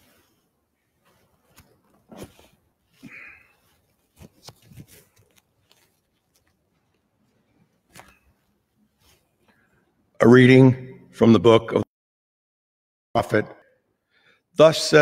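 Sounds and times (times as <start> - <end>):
people moving about: 1.0 - 9.5.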